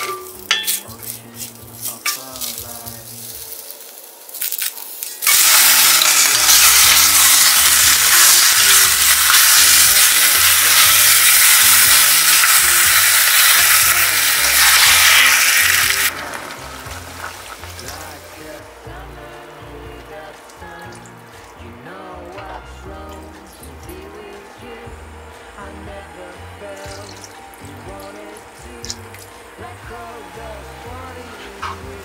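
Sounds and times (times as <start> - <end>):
chicken sizzling in pot: 0.0 - 18.6.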